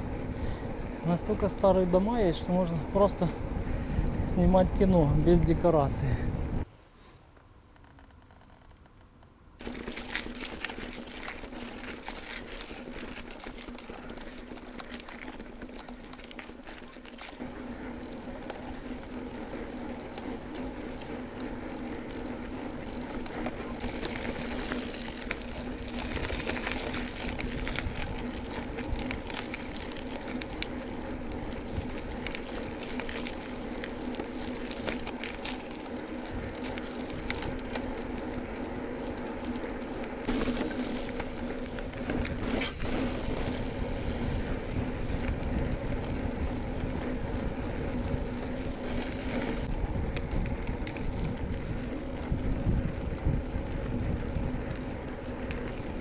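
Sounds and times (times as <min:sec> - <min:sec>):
bicycle tyre hum: 0:00.0 - 0:56.0
wind rumble on microphone: 0:02.0 - 0:06.7, 0:18.2 - 0:39.2, 0:41.3 - 0:56.0
bike clicks and rattles: 0:07.3 - 0:56.0.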